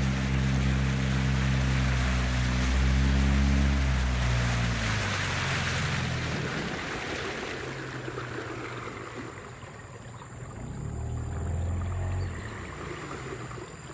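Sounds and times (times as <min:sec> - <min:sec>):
water rushing: 0:00.0 - 0:13.9
low hum: 0:09.2 - 0:13.9.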